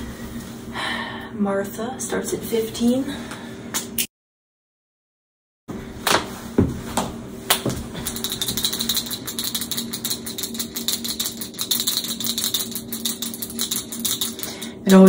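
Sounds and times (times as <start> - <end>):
steady low hum: 0.0 - 4.0, 5.7 - 15.0
paint marker ball rattling: 8.0 - 14.8.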